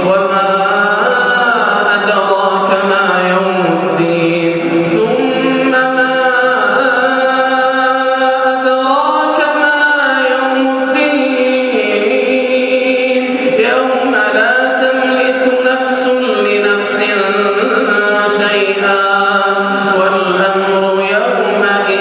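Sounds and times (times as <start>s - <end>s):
man chanting recitation: 0.0s - 22.0s.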